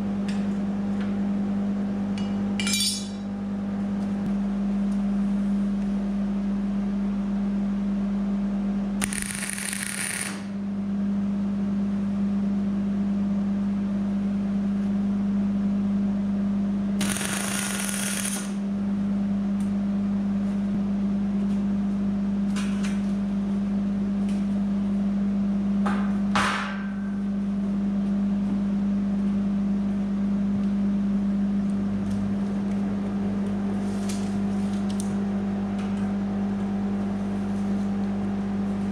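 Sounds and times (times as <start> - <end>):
steady low hum: 0.0 - 38.9
welding arc crackling: 9.0 - 10.5, 17.0 - 18.6.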